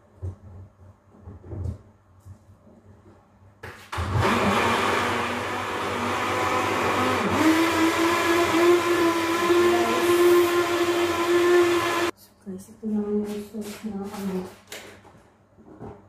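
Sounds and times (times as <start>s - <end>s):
blender running loudly: 4.0s - 12.1s.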